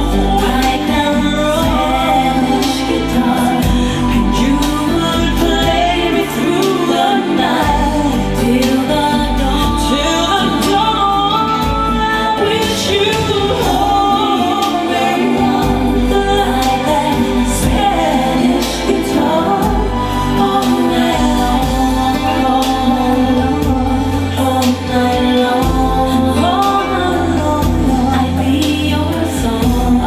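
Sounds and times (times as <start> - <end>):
song with singing over speakers: 0.0 - 30.0.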